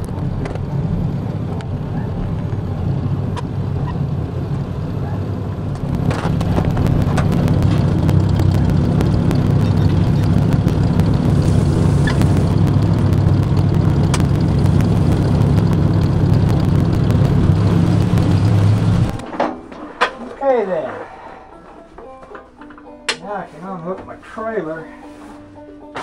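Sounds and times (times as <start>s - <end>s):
tractor engine running: 0.0s - 22.9s
clanks and rattles: 0.0s - 23.2s.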